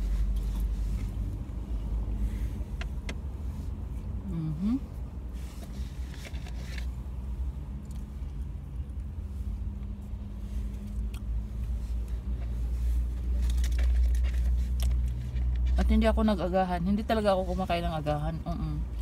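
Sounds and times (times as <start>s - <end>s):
food rustling and clicks: 13.1s - 15.8s.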